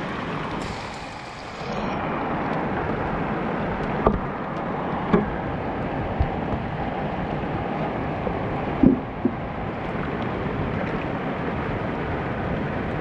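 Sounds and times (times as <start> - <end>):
water rushing through channel: 0.0 - 13.0
short thumps: 8.8 - 9.4.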